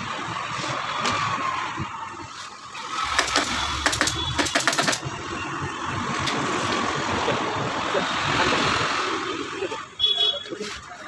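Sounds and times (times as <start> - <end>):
street traffic: 0.0 - 11.0
staple gun firing: 3.1 - 5.0.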